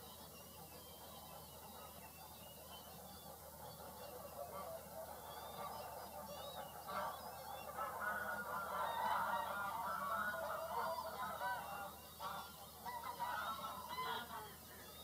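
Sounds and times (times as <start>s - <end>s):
geese honking: 3.2s - 15.0s.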